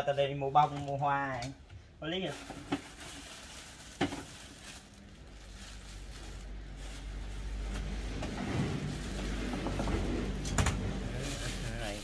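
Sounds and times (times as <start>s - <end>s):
low motor hum: 5.1s - 11.8s.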